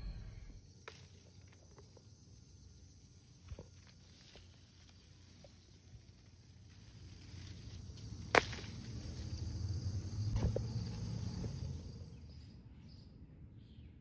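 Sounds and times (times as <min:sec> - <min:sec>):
leaves rustling on microphone: 0:02.9 - 0:09.5
pepper stem snapping: 0:08.0 - 0:09.2.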